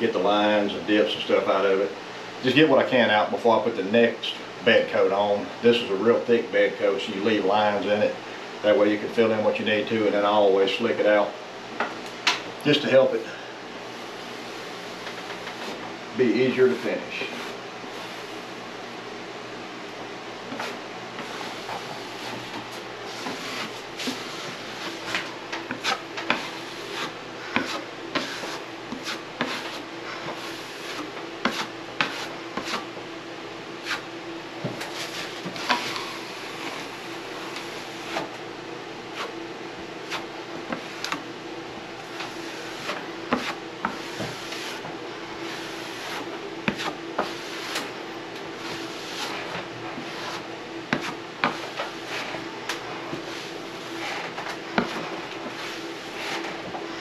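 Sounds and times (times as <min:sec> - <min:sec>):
drywall knife scraping compound: 0:16.4 - 0:18.5, 0:20.5 - 0:32.9, 0:33.8 - 0:34.1, 0:34.8 - 0:38.4, 0:40.0 - 0:41.2, 0:42.0 - 0:48.0, 0:48.6 - 0:56.8.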